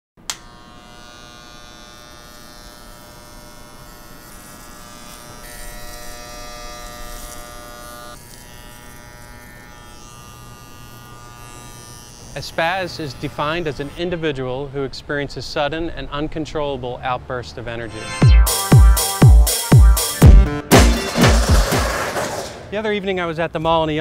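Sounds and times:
electric hair clippers buzzing: 0.2 - 14.0, 18.4 - 21.9.

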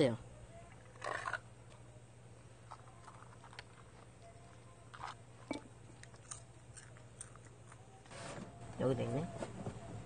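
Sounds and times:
popcorn being chewed: 0.6 - 8.1.

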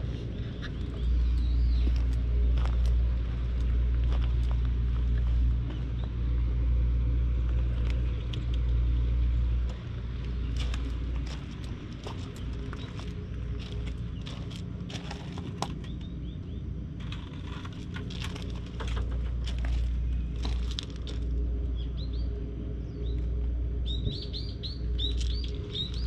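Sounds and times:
light clicks and crunches: 9.6 - 16.1, 17.0 - 21.4.

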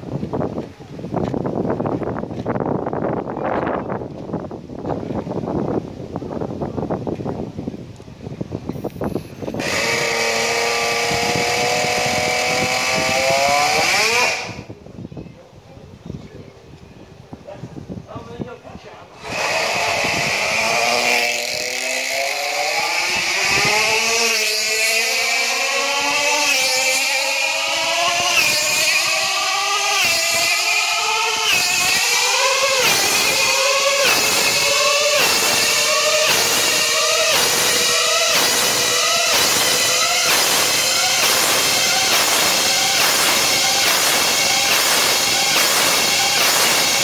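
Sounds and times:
model car engine whining: 9.2 - 14.7, 19.2 - 47.0.

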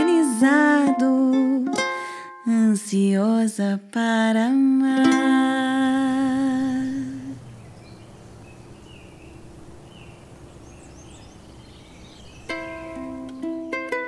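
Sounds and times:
plucked ukulele notes: 0.0 - 2.7, 4.9 - 6.9, 12.5 - 14.0
faint bird chirps: 6.6 - 13.8.

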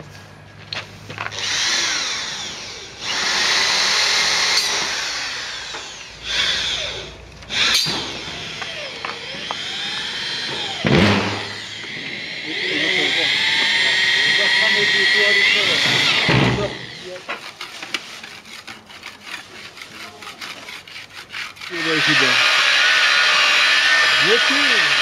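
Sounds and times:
electric drill running: 1.3 - 17.0, 21.7 - 25.0.

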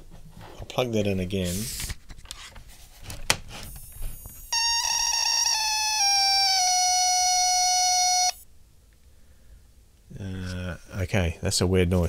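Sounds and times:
high-pitched electronic whine: 4.2 - 8.4.

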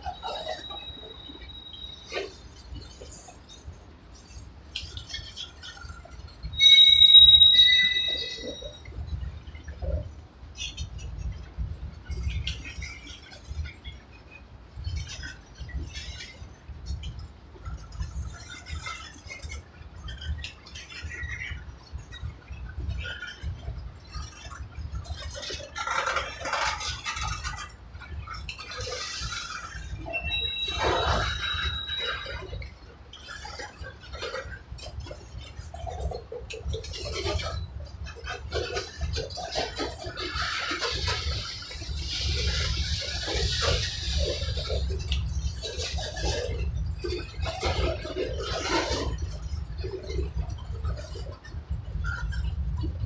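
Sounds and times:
high-pitched wheel squeal: 6.5 - 8.9, 29.9 - 32.6.

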